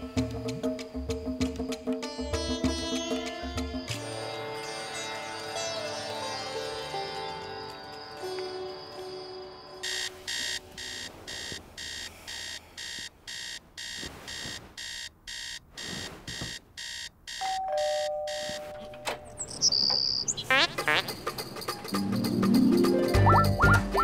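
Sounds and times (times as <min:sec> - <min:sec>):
alarm clock rapid beeps: 0:09.8 - 0:20.9
two-note chime: 0:17.4 - 0:19.3.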